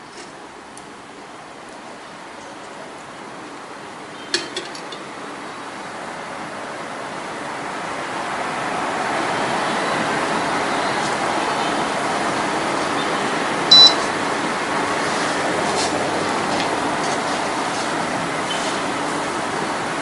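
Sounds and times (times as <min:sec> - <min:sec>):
steady rushing noise: 0:05.8 - 0:20.0
high electronic beep: 0:13.7 - 0:14.0.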